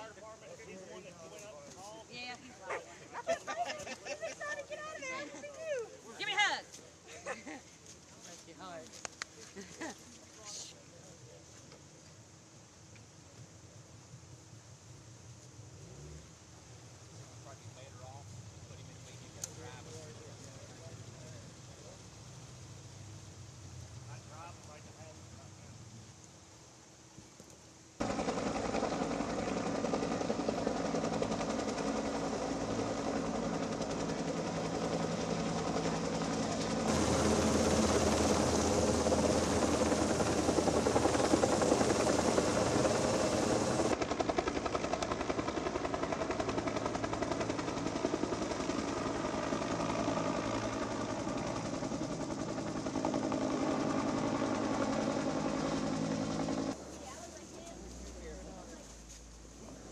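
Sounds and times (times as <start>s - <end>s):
helicopter rotors beating: 28.0s - 58.8s.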